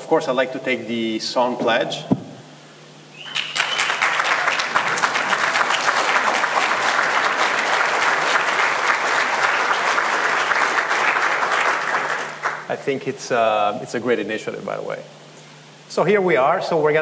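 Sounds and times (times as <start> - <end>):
large audience applauding: 3.2 - 12.7.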